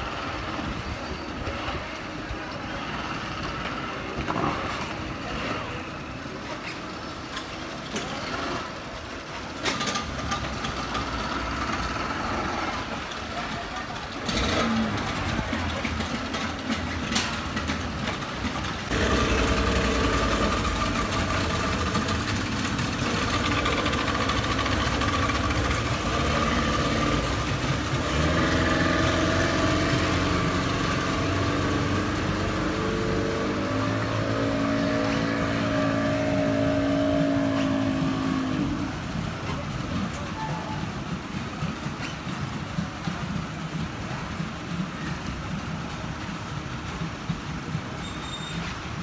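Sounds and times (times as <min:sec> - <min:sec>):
outboard motors revving: 0:10.0 - 0:40.1.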